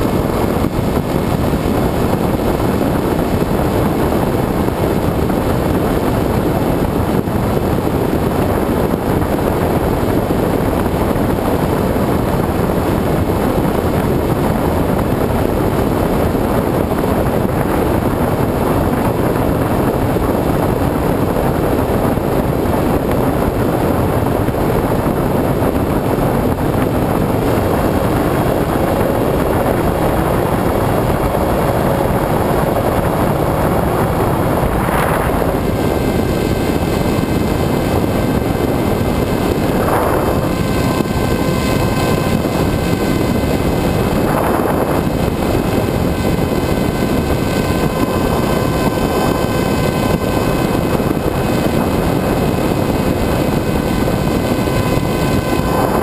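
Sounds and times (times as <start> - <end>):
wind rushing over camera: 0.0 - 56.0
electric motor whine: 26.0 - 56.0.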